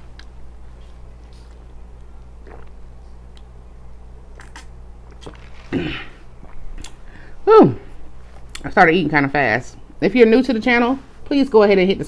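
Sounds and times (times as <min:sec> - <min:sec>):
low steady hum: 0:00.0 - 0:12.0
person swallowing: 0:02.4 - 0:02.8, 0:04.3 - 0:07.0.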